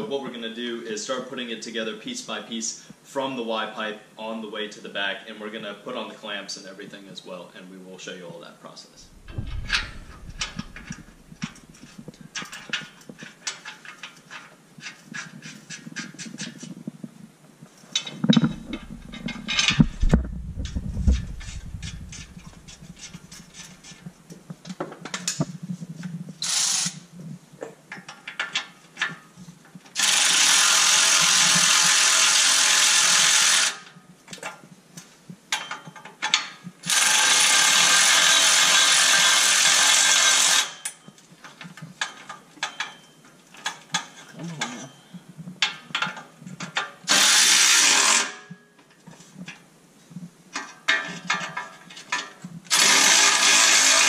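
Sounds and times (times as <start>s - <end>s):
low knocks: 9.1s - 11.8s, 18.5s - 23.0s
electric ratchet running: 26.4s - 27.0s, 30.0s - 33.8s, 36.9s - 40.7s, 52.7s - 54.0s.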